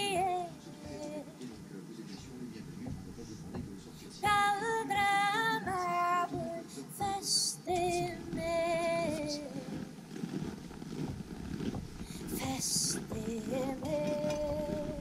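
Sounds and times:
woman singing held notes: 12.4s - 15.0s.

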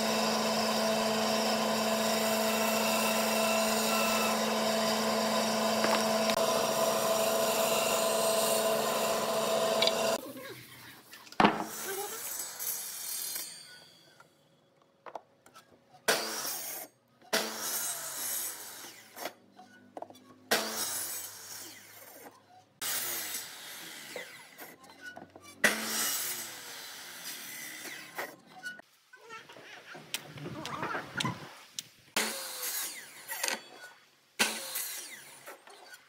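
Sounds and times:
miter saw cutting wood: 0.0s - 10.2s, 16.1s - 19.4s, 20.5s - 24.8s, 25.6s - 28.4s, 32.2s - 36.0s.

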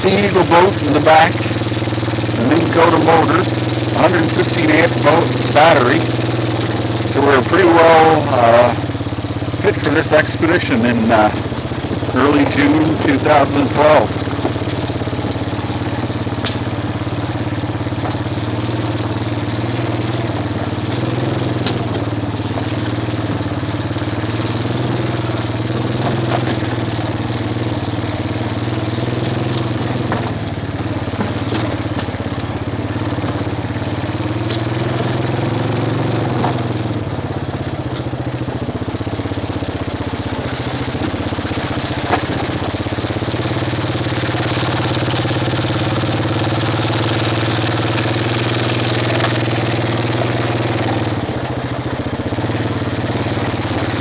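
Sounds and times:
atv engine running: 0.0s - 54.0s
knocks and rattles: 19.8s - 33.7s, 40.2s - 51.7s.

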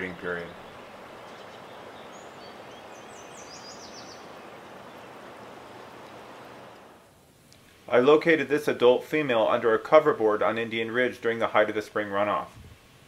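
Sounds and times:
river rushing: 0.0s - 7.1s
high bird chirps: 0.5s - 5.1s.

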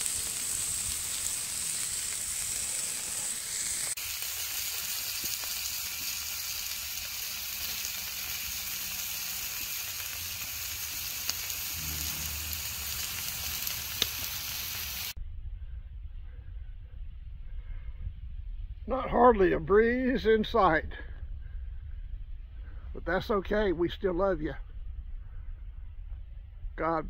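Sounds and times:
meat sizzling on a grill: 0.0s - 15.2s.

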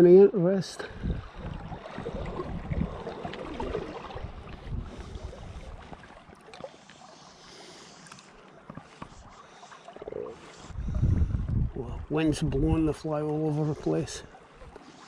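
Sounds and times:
wind rumbling on microphone: 0.8s - 6.2s, 10.6s - 13.1s.

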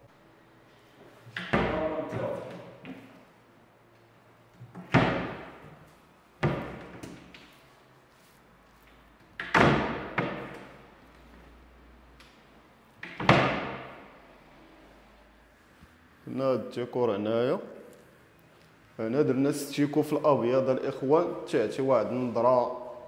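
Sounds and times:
cabinet doors thumping shut: 1.4s - 2.4s, 4.8s - 5.6s, 6.4s - 7.1s, 9.4s - 10.6s, 13.0s - 13.9s.

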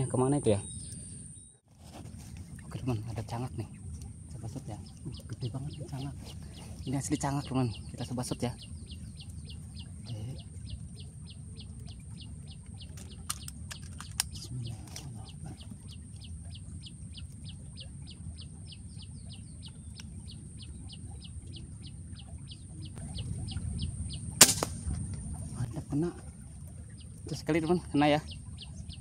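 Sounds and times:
bird chirping: 0.0s - 29.0s
air rifle shot: 24.4s - 25.0s.

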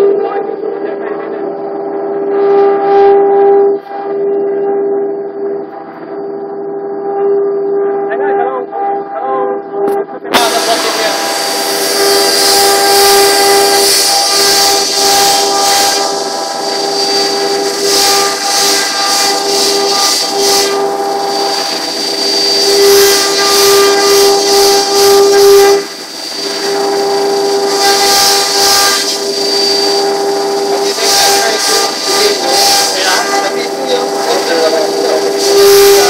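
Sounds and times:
router spindle whine: 10.3s - 36.0s
router bit cutting wood: 10.4s - 36.0s.

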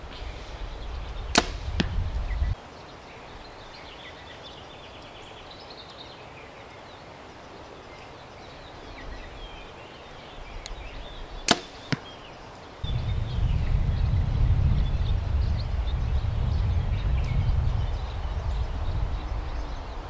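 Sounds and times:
bow string crack: 1.0s - 2.6s, 11.4s - 12.1s
loud low rumble: 12.8s - 20.0s.

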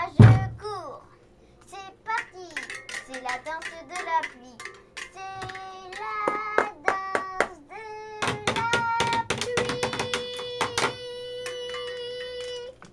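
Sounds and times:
child singing wordless notes: 0.0s - 12.8s
sharp hand claps: 2.6s - 7.6s.

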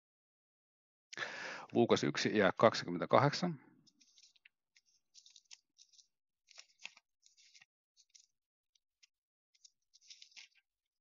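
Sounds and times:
paper pages rustling: 3.8s - 11.0s.

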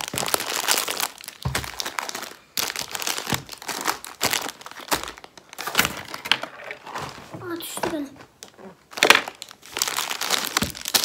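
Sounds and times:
plastic wrappers crinkling: 0.0s - 7.2s, 8.4s - 11.0s.

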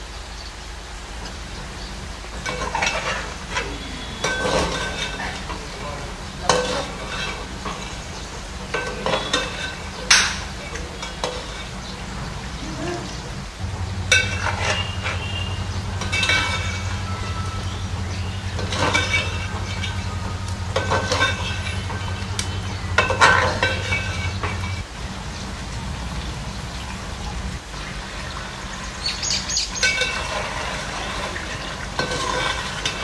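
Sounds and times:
chicken sizzling: 0.0s - 33.0s
spoon scraping steel pot: 2.4s - 5.8s, 6.4s - 11.8s.

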